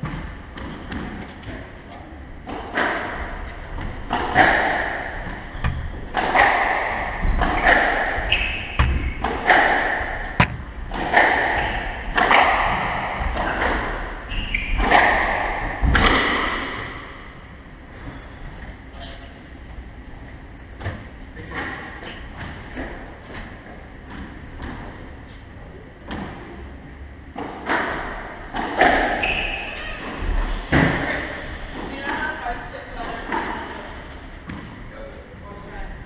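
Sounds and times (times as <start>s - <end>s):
squash ball hit by racquets: 2.4s - 17.3s, 27.4s - 32.3s.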